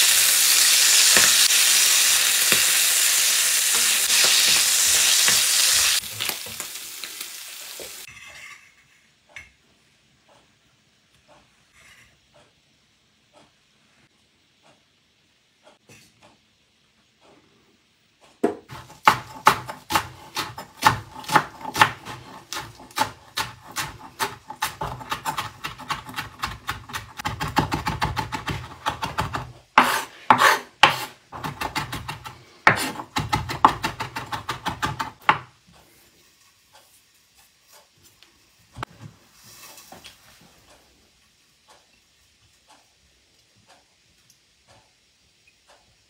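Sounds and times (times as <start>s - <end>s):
knife chopping on cutting board: 3.7s - 5.9s, 18.4s - 35.5s.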